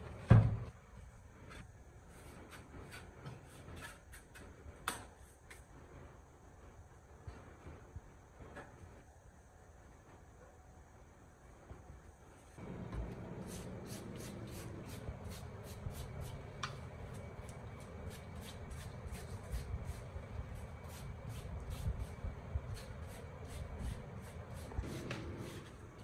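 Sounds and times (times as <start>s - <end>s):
paintbrush sweeping across cloth mat: 12.7s - 16.4s.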